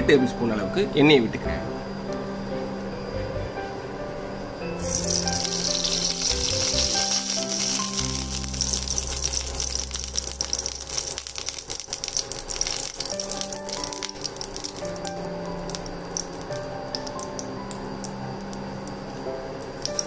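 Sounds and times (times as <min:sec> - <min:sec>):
soft background music: 0:00.0 - 0:20.0
oil sizzling in a frying pan: 0:04.8 - 0:20.0.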